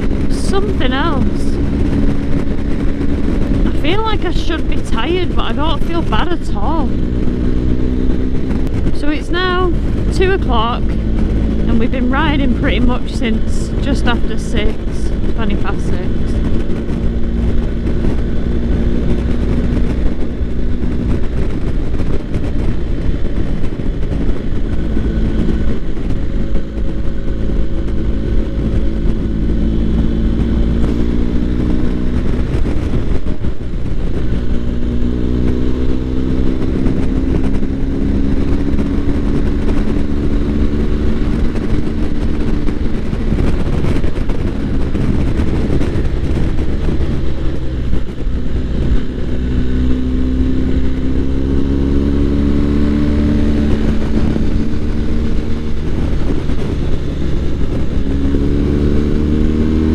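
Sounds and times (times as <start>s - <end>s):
motorcycle engine running: 0.0s - 59.9s
wind rushing: 0.0s - 59.9s.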